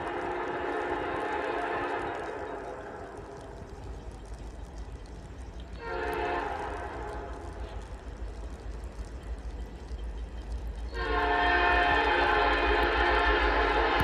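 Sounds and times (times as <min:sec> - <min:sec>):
locomotive air horn blasts: 0:00.0 - 0:02.2, 0:05.8 - 0:07.3, 0:10.9 - 0:14.0.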